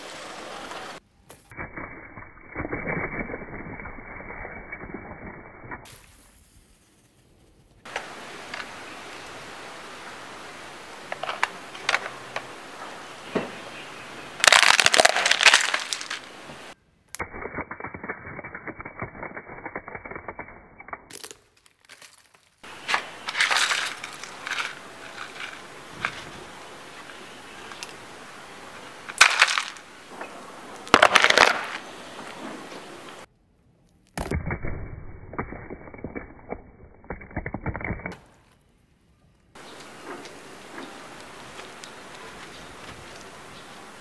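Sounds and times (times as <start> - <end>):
plastic pieces scraping on concrete: 11.1 - 12.5, 14.4 - 16.4, 21.1 - 28.1, 28.7 - 29.9, 30.8 - 33.2
plastic toy cracking under tyre: 14.4 - 16.3, 21.0 - 26.3, 29.1 - 29.8, 30.8 - 31.8.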